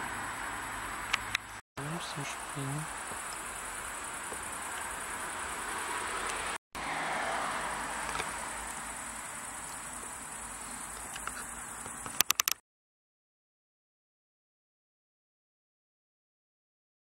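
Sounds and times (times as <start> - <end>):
crickets chirping: 0.0 - 12.6.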